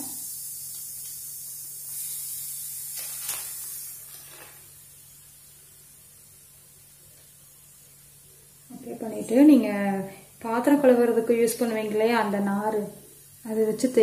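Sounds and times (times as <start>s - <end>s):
liquid fizzing on hot pan: 0.0s - 14.0s.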